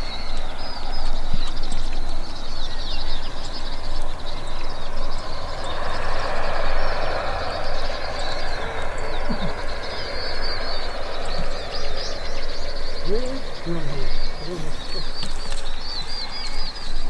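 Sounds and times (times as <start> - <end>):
small birds chirping: 0.0 - 17.0
steady outdoor rumble: 0.0 - 17.0
rushing noise: 5.2 - 13.7.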